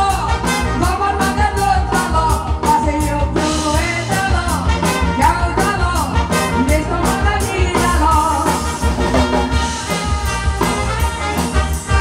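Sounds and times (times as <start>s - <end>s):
woman singing into microphone: 0.0s - 8.8s
live band upbeat tune: 0.0s - 12.0s.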